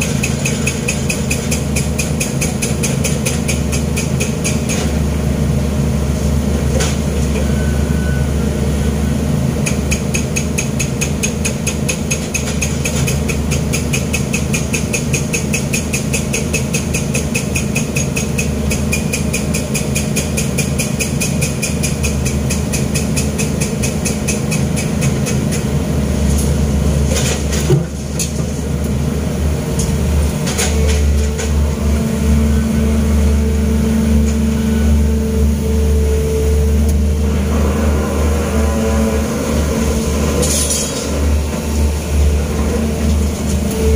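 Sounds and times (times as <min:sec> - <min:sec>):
excavator diesel engine running: 0:00.0 - 0:43.9
steady higher hum: 0:31.0 - 0:43.9.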